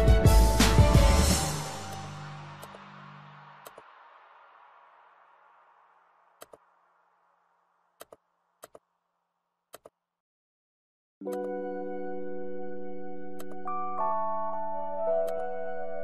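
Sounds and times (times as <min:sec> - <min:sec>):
music with held keyboard tones: 0:00.0 - 0:02.8, 0:11.2 - 0:16.0
background music: 0:00.0 - 0:03.8, 0:11.2 - 0:16.0
computer mouse clicking: 0:03.6 - 0:03.8, 0:06.4 - 0:06.6, 0:08.0 - 0:08.8, 0:09.7 - 0:10.0.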